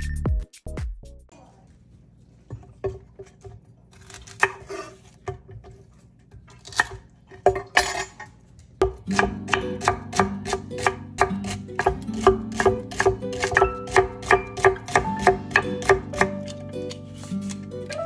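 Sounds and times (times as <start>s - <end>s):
knife chopping celery on board: 8.8s - 18.0s
soft background music: 8.8s - 18.0s.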